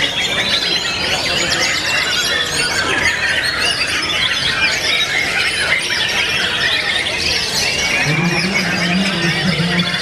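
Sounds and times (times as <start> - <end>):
man's voice: 8.0 - 10.0.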